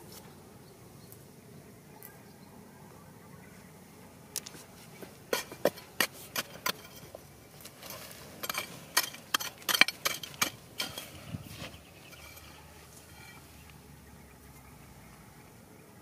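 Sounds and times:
digging tool scraping stony soil: 5.3s - 13.6s.

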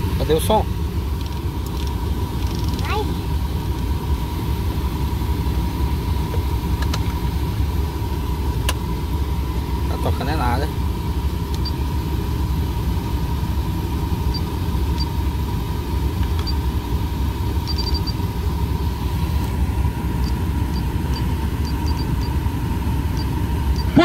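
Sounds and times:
car engine idling: 0.0s - 24.0s
short beeps from car stereo: 17.6s - 18.2s, 20.2s - 22.4s, 23.2s - 24.0s.

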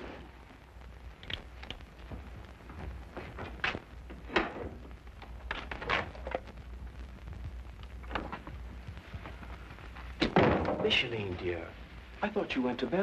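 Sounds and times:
low hum: 0.0s - 12.2s
footsteps: 2.0s - 4.3s.

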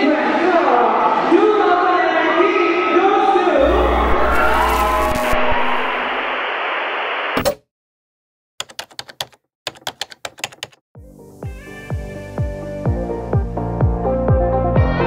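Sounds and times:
crowd cheering: 0.0s - 6.6s
music with steady beat: 11.0s - 15.0s.

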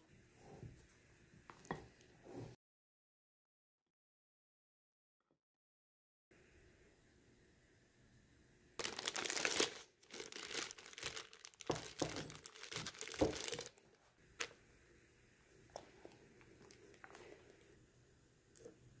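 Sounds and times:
plastic bag crinkling: 8.8s - 14.5s.

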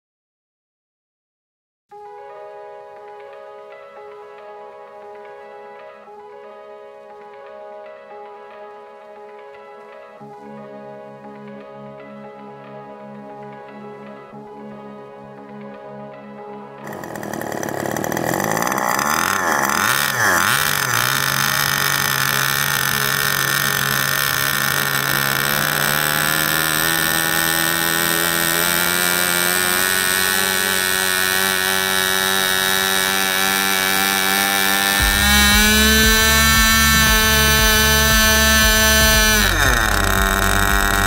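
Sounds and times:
model plane engine running: 16.8s - 41.0s.

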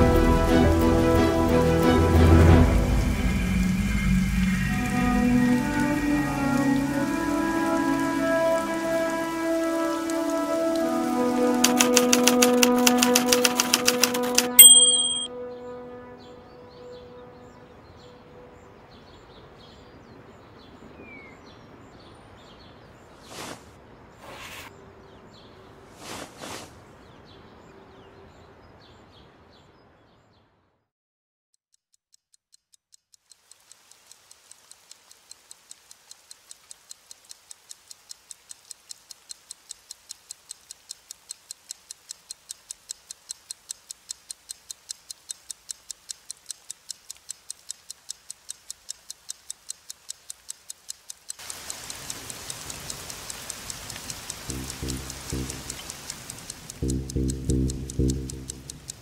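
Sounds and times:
rain hissing: 0.0s - 14.6s, 22.1s - 24.8s, 25.8s - 27.0s, 33.4s - 59.0s
wall clock ticking: 11.5s - 15.3s, 31.7s - 59.0s.

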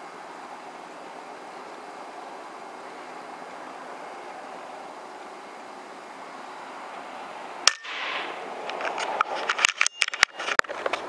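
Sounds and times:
air rifle shot crack: 7.7s - 8.4s.

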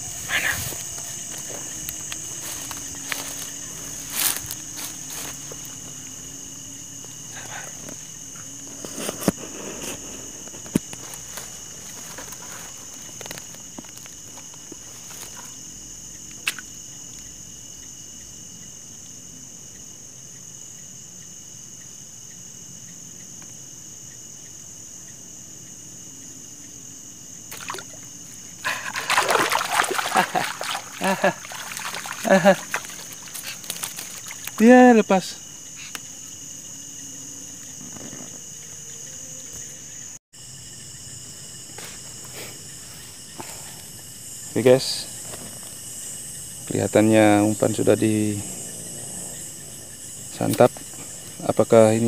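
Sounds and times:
night insects trilling: 0.0s - 52.0s
rustles: 7.7s - 15.7s, 27.9s - 34.8s.

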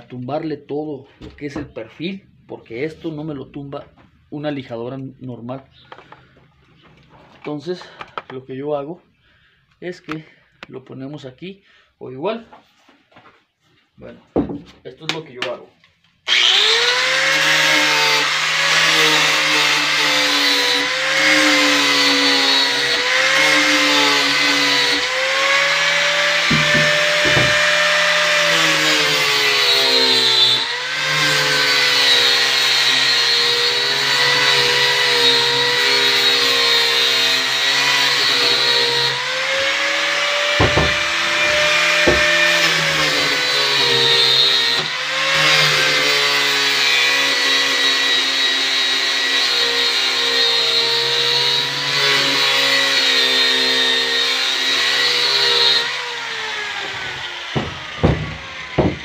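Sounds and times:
angle grinder sanding wood: 16.3s - 59.0s
short knocks: 26.4s - 27.6s, 40.6s - 42.4s, 57.5s - 59.0s.

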